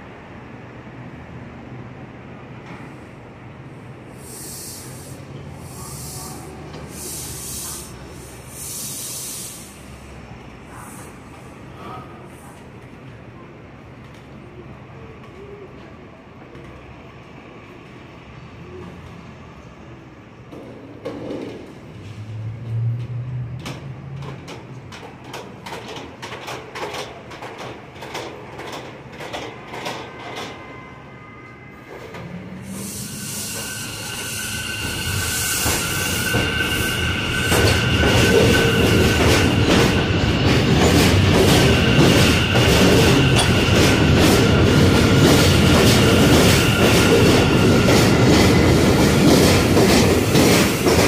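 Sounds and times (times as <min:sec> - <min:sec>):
train low hum: 0:00.0 - 0:51.0
train air system hissing: 0:02.7 - 0:12.9, 0:32.4 - 0:51.0
train wheels clattering over joints: 0:37.5 - 0:51.0.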